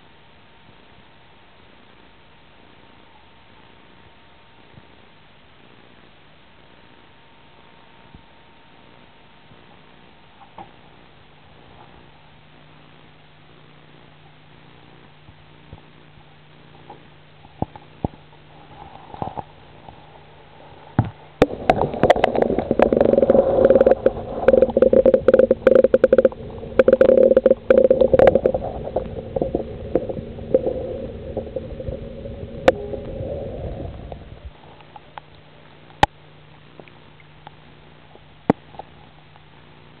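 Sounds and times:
faint steady hum: 0.0s - 40.0s
muffled water gurgling: 10.7s - 40.0s.

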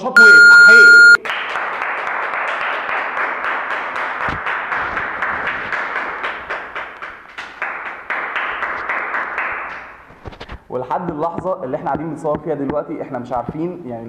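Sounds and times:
crowd applauding: 1.2s - 6.9s.

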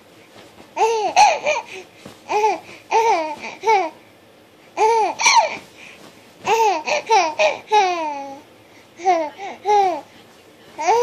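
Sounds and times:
baby laughing: 0.8s - 1.7s, 4.8s - 5.6s, 6.5s - 8.4s.

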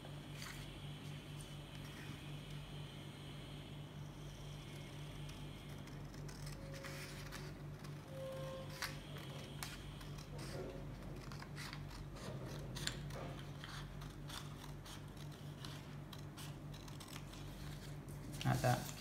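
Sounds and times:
scissors cutting paper: 9.6s - 18.0s.

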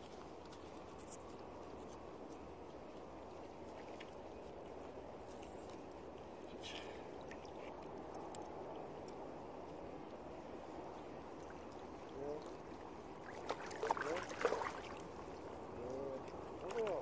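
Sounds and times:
water rushing: 11.2s - 17.0s
fish splashing: 13.2s - 15.2s.

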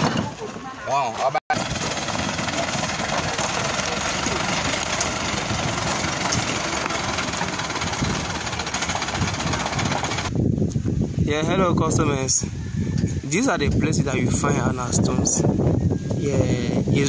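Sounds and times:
tyres on gravel: 0.0s - 10.3s
truck engine running: 1.5s - 10.4s.

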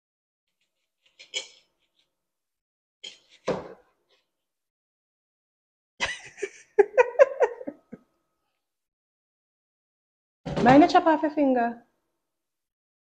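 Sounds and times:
person giggling: 6.0s - 8.0s.

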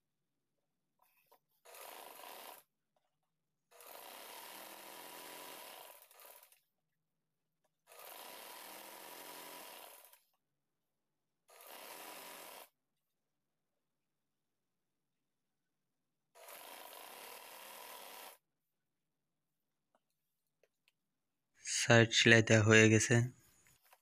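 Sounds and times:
sewing machine stitching: 1.0s - 3.1s, 3.7s - 6.7s, 7.7s - 10.4s, 11.4s - 12.8s, 16.3s - 18.4s.

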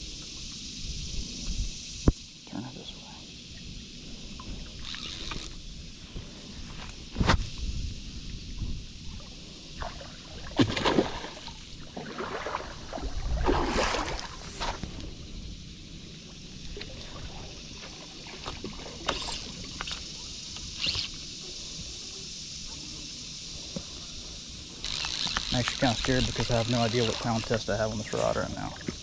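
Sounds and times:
water sloshing: 9.2s - 15.0s.

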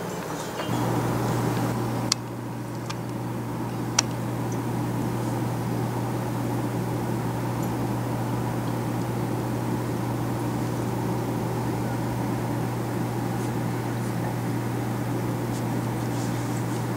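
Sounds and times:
aquarium equipment humming: 0.0s - 16.9s
sharp clicks: 1.6s - 3.2s.

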